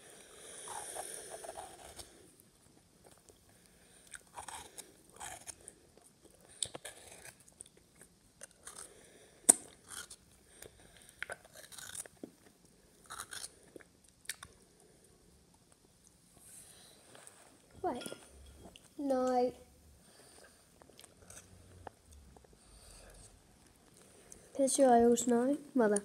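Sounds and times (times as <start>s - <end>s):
teeth scraping biscuit filling: 0.5s - 14.6s
chewing: 0.6s - 14.6s, 20.4s - 24.5s.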